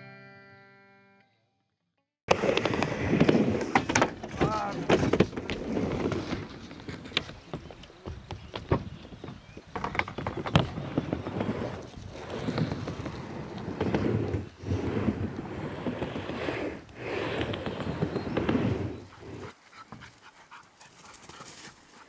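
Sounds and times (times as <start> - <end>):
wind buffeting microphone: 7.4 - 19.5
dogs panting: 18.9 - 22.0.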